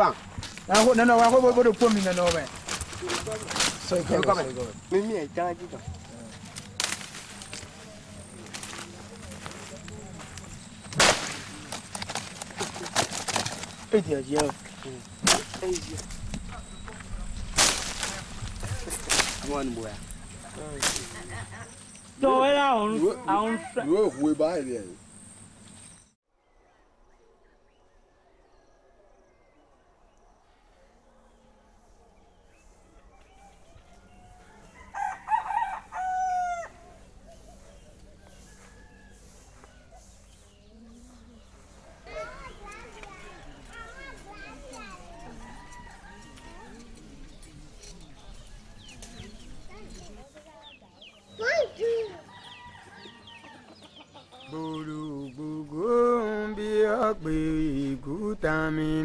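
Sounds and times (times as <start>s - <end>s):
small birds chirping: 0.0s - 59.0s
rooster crowing: 33.3s - 37.0s, 38.2s - 40.1s, 44.8s - 47.1s, 52.2s - 53.8s
man singing a slow chant: 54.4s - 59.0s.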